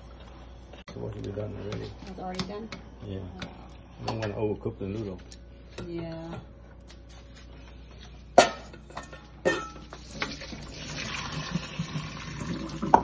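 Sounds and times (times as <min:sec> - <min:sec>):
water pouring and splashing: 0:10.0 - 0:13.0.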